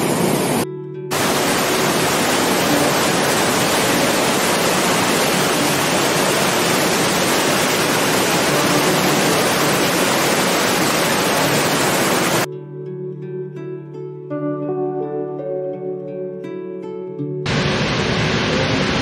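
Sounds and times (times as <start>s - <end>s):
waterfall rushing: 0.0s - 12.5s, 17.5s - 19.0s.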